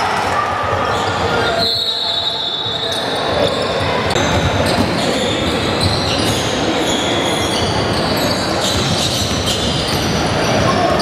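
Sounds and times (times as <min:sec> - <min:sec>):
sneaker squeaks: 0:00.8 - 0:11.0
basketball bouncing on court: 0:07.5 - 0:11.0.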